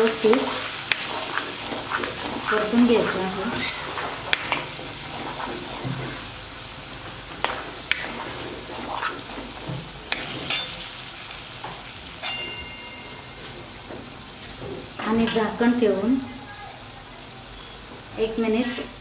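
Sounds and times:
sauce sizzling in oil: 0.0 - 19.0
metal spatula scraping pan: 0.3 - 6.3, 7.4 - 10.9.

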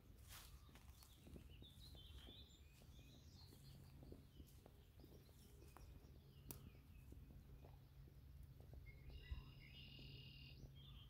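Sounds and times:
low steady rumble: 0.0 - 11.0
soft ticks: 6.4 - 6.7
faint bird chirps: 8.7 - 11.0.

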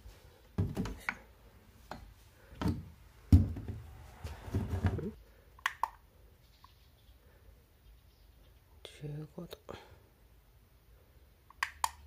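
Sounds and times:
knocks and thuds on wooden table: 2.6 - 3.8.

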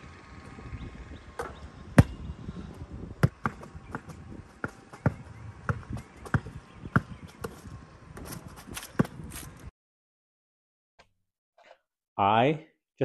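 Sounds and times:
basketball bouncing on hard court: 1.4 - 9.3.

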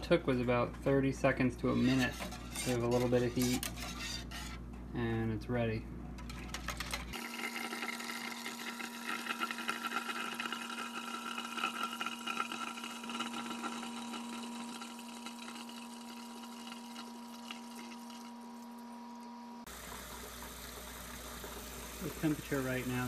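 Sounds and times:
liquid pouring into glass jug: 7.1 - 18.9.

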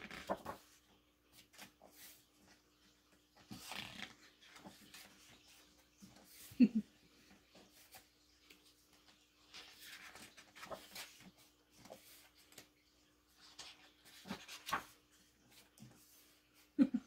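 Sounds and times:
pages rustling: 0.0 - 6.6, 7.2 - 16.7.

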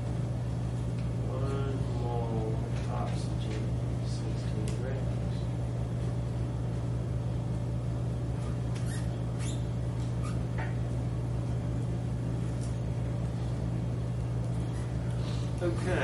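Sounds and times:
steady low hum: 0.0 - 16.0
marker squeaking on plastic sheet: 8.4 - 10.4.

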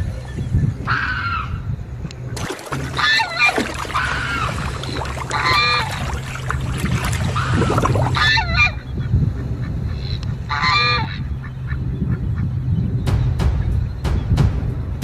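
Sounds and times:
steady low hum: 0.0 - 15.0
waterfowl honking: 0.8 - 1.6, 2.4 - 12.5.

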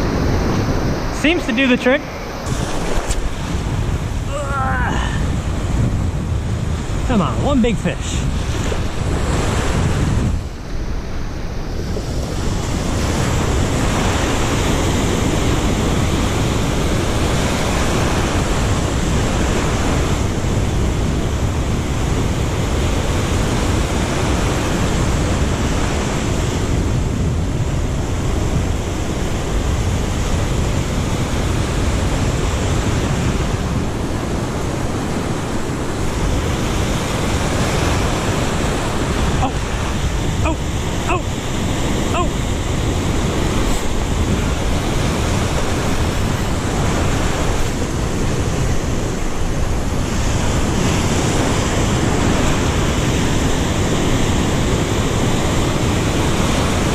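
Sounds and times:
surf washing over rocks: 0.0 - 56.9.

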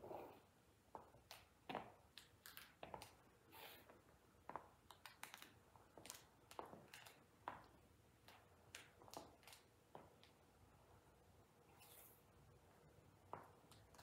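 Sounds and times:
high heels tapping on floor: 0.9 - 3.2.

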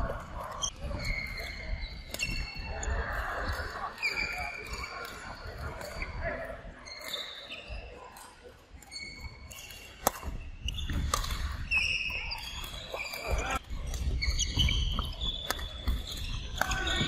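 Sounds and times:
shoes squeaking on floor: 6.8 - 8.1, 8.8 - 17.0
rackets hitting shuttlecock: 9.5 - 17.0.

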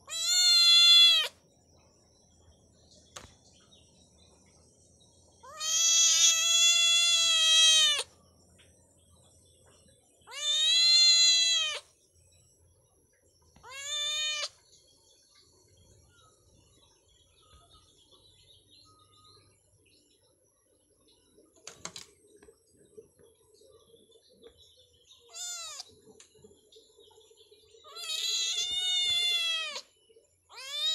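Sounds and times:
kitten meowing: 0.0 - 1.3, 5.4 - 8.1, 10.3 - 11.8, 13.6 - 14.5, 25.3 - 25.8, 27.9 - 29.8, 30.5 - 30.9.

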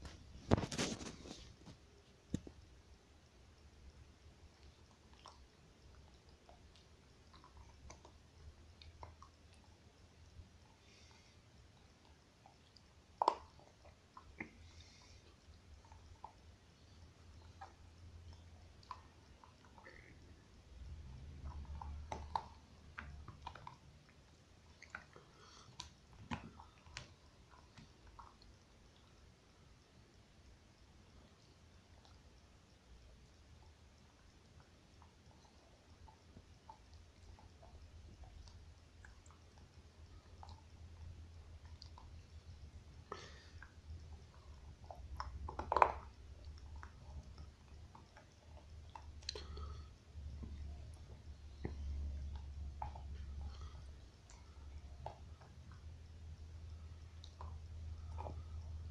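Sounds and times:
dog chewing on bone: 34.5 - 55.9, 57.2 - 58.9.

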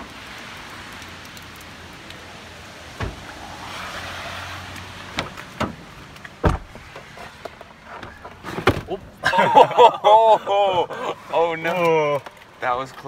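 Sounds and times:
heavy rain hissing: 0.0 - 7.4
car doors opening and shutting: 2.9 - 3.5, 5.0 - 9.1.

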